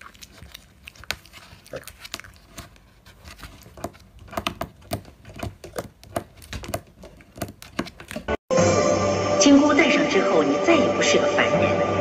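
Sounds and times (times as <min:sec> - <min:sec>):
piglet chewing and smacking: 0:00.0 - 0:08.4.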